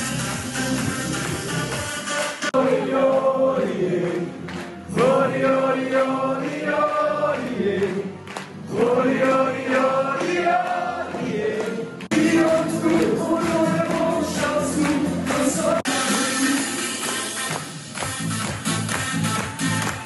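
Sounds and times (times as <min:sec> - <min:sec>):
chorus singing party song: 0:00.6 - 0:17.3.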